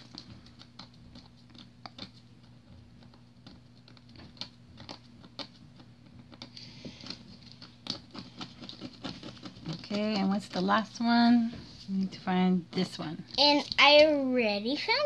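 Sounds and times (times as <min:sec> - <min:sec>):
fingernail scratching paper: 0:00.4 - 0:10.4.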